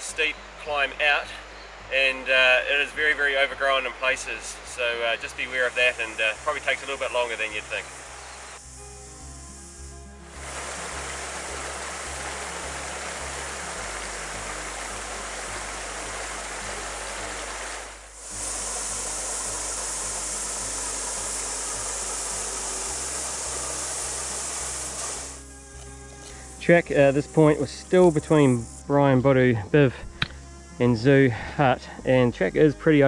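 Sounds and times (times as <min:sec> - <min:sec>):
music with pulsing bass: 0:08.0 - 0:17.0
rushing mountain stream: 0:10.2 - 0:25.4
small cascade pouring into pool: 0:10.4 - 0:25.4.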